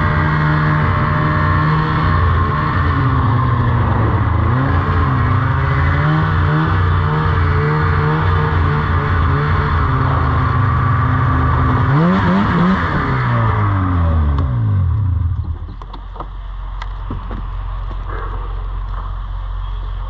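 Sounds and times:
snowmobile engine running hard: 0.0 - 15.6.

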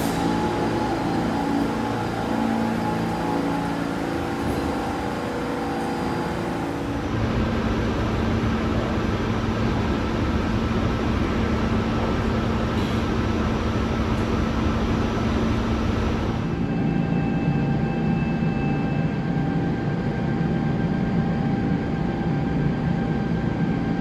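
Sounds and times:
subway train rumbling: 0.0 - 24.0.

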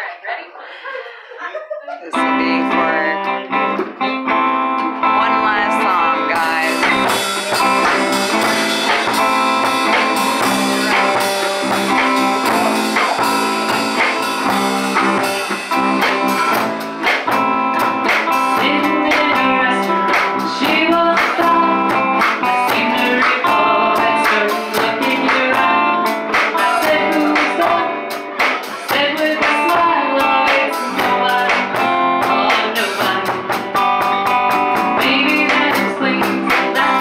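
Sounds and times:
bass guitar: 2.1 - 37.0
electric guitar: 2.1 - 37.0
woman singing: 2.2 - 3.4, 5.2 - 7.2, 18.4 - 33.5, 34.9 - 37.0
drums: 2.2 - 37.0.

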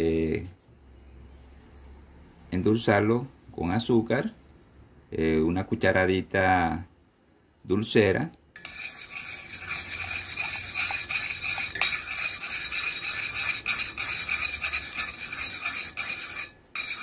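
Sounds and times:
spoon scraping steel saucepan: 8.6 - 17.0.

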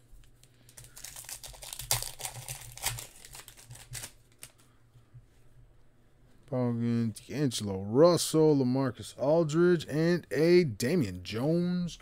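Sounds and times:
foil wrapper tearing and crinkling: 0.4 - 4.6.

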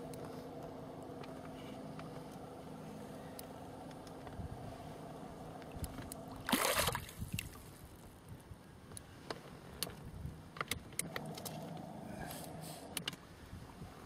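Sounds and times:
gentle water sounds: 0.0 - 9.1
fish splashing: 6.3 - 7.8.

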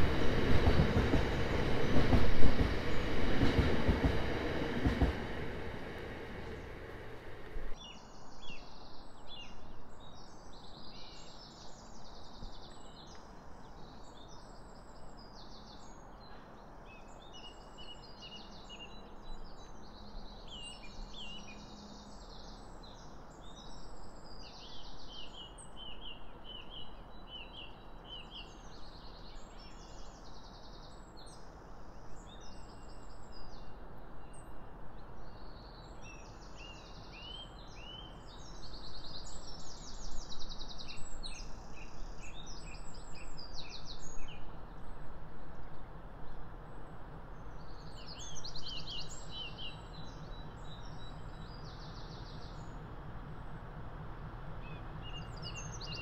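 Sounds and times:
songbirds chirping and trilling: 45.9 - 53.6, 54.5 - 56.0.

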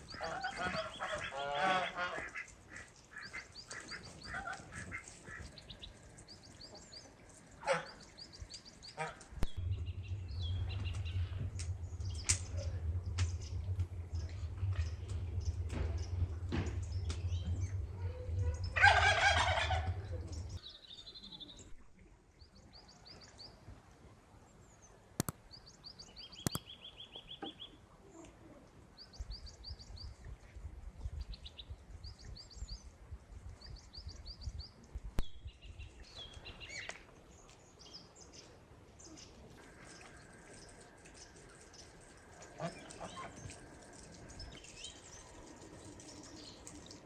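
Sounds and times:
small birds chirping: 0.0 - 21.8, 24.7 - 27.8, 33.5 - 47.0
low rumble: 8.2 - 22.1, 39.6 - 47.0
fowl calling loudly: 18.8 - 20.5.

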